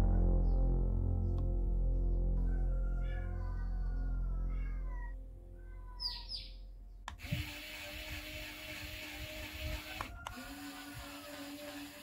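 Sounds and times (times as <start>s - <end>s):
background music with low drone: 0.0s - 7.0s
small gear motor whirring: 7.1s - 12.0s
click: 10.0s - 10.4s.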